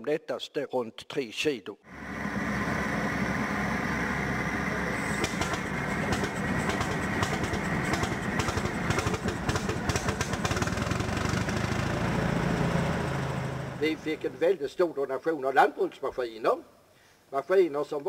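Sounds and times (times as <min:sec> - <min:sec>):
tractor engine firing knocks: 0:05.1 - 0:11.1.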